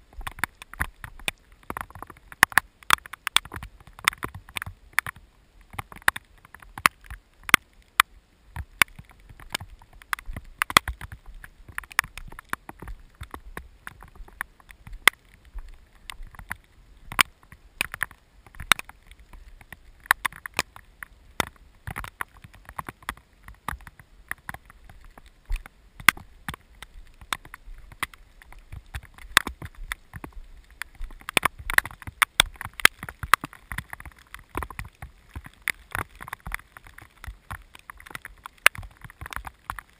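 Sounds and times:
faint low rumble: 0.0s - 39.9s
raindrops ticking on camera: 0.0s - 39.9s.

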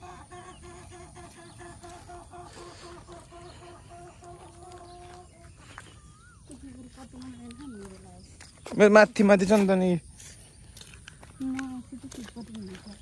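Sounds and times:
chicken clucking: 0.0s - 5.6s.

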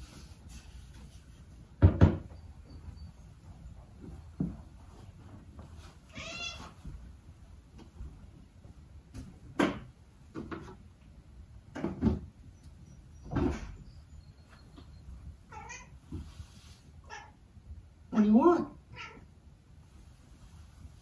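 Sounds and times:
sharp clunks and knocks: 1.8s - 2.4s, 9.1s - 10.8s, 11.7s - 12.4s, 13.2s - 13.9s
cat meowing: 6.1s - 6.8s, 15.5s - 16.0s, 18.9s - 19.3s.

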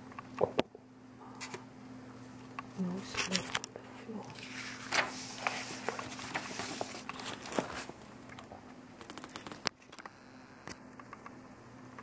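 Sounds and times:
faint steady hum: 0.0s - 12.0s
paper rustling and crackling: 4.3s - 8.1s, 9.0s - 9.7s.

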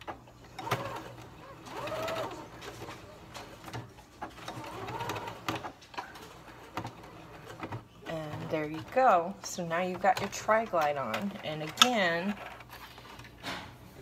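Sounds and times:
sewing machine motor whine: 0.6s - 2.6s.

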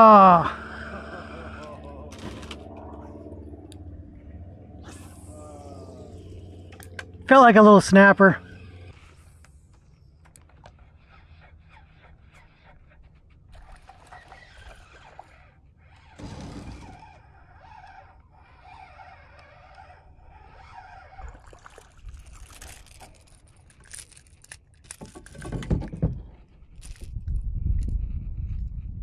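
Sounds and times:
fishing reel cranking: 0.0s - 3.8s, 4.8s - 25.4s
reel scraping and clicking: 0.7s - 3.0s, 8.0s - 25.8s
fish splashing: 10.8s - 16.2s, 17.2s - 23.9s.

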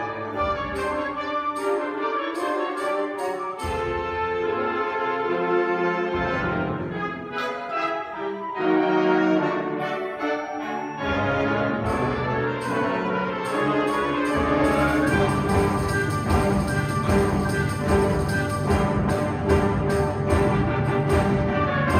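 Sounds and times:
concert band playing: 11.8s - 21.9s.

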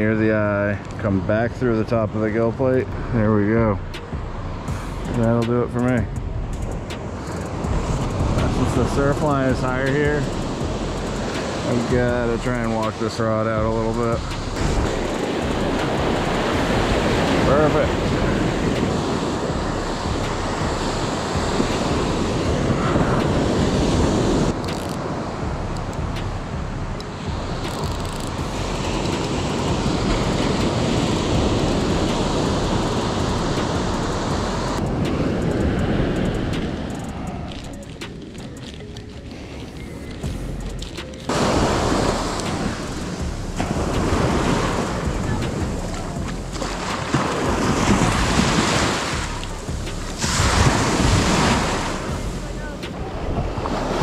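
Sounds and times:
wind buffeting microphone: 0.0s - 54.0s
surf breaking on sandy beach: 6.9s - 10.6s, 11.2s - 25.4s, 27.1s - 40.2s, 41.0s - 54.0s.

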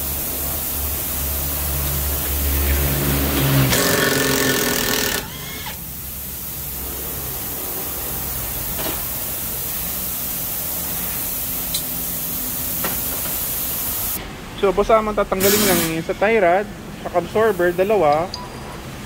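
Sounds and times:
power tool whirring: 2.8s - 6.0s.

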